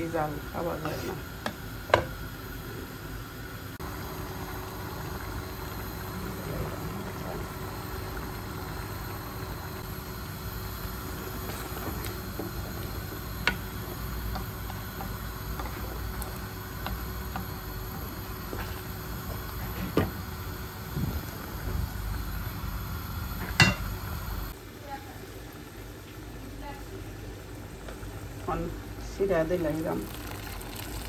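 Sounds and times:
low mechanical kitchen hum: 0.0 - 31.0
wooden spoon stirring ticks: 13.3 - 18.8.

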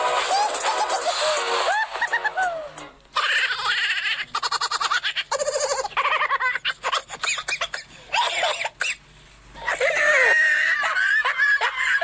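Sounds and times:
laughter in short bursts: 0.2 - 7.4
high-pitched snickering: 0.2 - 9.0.

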